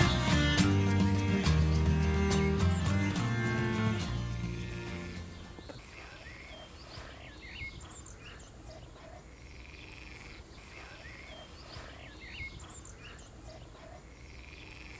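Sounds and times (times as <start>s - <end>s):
frogs croaking and trilling: 5.4s - 14.9s.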